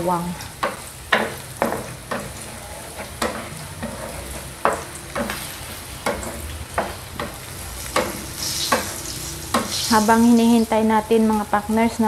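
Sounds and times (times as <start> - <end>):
garlic sizzling in hot oil: 0.0 - 12.0
wooden spatula scraping a pan: 1.2 - 7.4.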